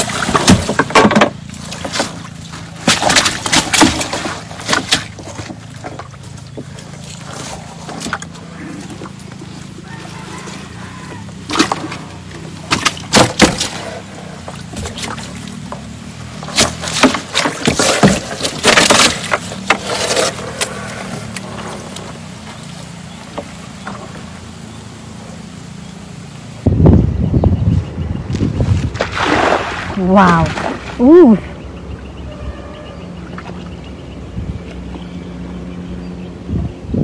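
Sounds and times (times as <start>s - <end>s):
fish slapping wetly in boat: 0.0s - 24.5s, 28.8s - 31.1s.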